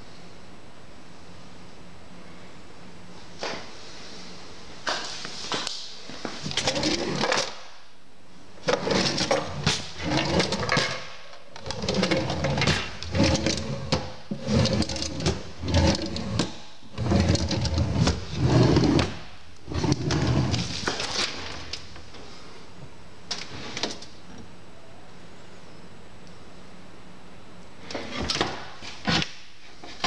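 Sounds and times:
low steady hum: 0.0 - 30.0
drawers sliding and knocking shut: 8.6 - 21.7.

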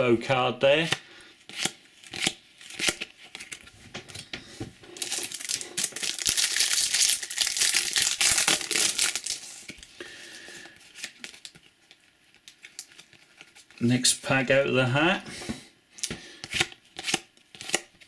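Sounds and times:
foil wrapper crinkling: 5.0 - 9.9.

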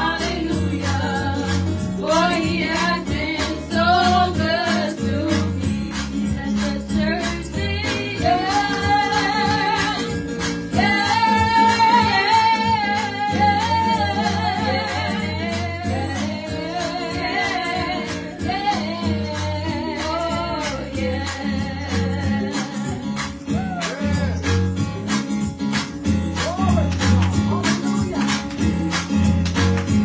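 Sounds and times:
women singing gospel: 0.0 - 23.6
instrumental accompaniment with beat: 0.0 - 30.0.

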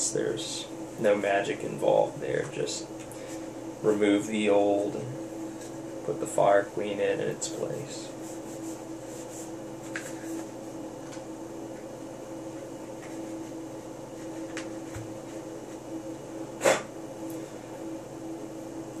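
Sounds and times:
steady hum: 0.0 - 19.0
paper towel rustling: 7.5 - 10.6.

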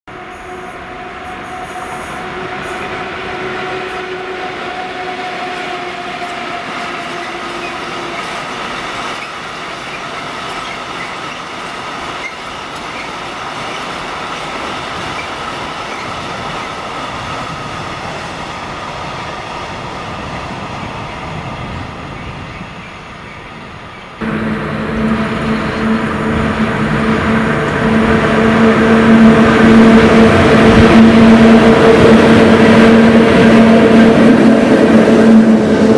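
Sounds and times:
train wagons rolling on rails: 0.2 - 35.9.

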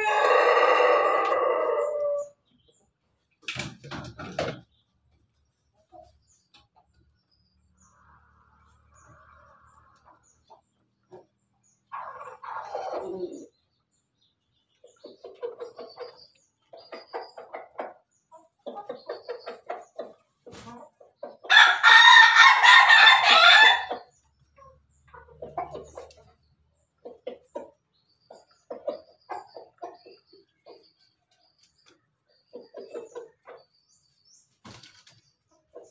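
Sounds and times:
rooster crowing: 0.0 - 2.3, 21.5 - 23.9
chickens clucking: 0.0 - 35.9.

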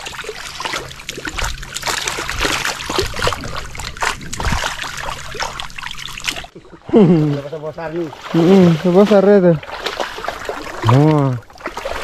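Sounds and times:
water splashing and dripping: 0.0 - 12.0.

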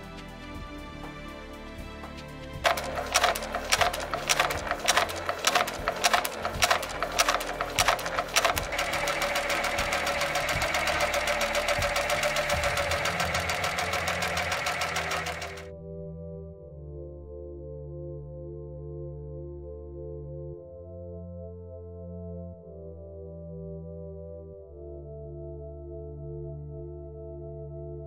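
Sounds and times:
industrial sewing machine clacking: 2.6 - 15.7.

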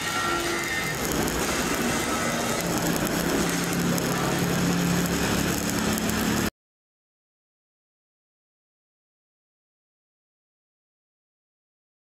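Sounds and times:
welding arc hiss and crackle: 0.0 - 6.5.

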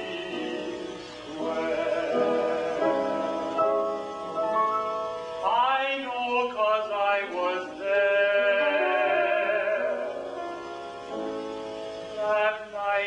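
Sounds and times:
man singing classically: 0.0 - 3.6, 5.4 - 10.4, 12.2 - 13.0
piano accompaniment: 0.0 - 13.0.

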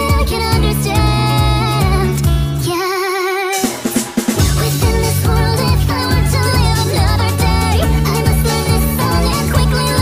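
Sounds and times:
woman singing sped-up pop song: 0.0 - 10.0
steady bass line: 4.3 - 10.0.

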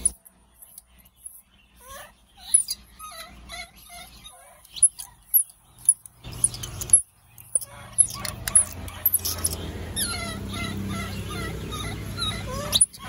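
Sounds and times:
very high chirps: 0.0 - 13.0
baby monkeys crying: 1.8 - 5.5, 6.3 - 13.0.

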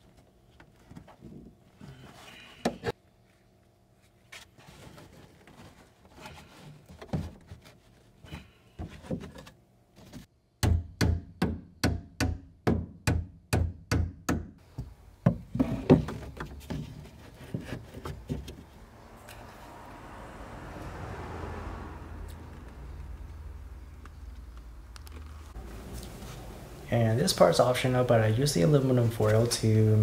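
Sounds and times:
hammer striking car body: 10.6 - 14.6.

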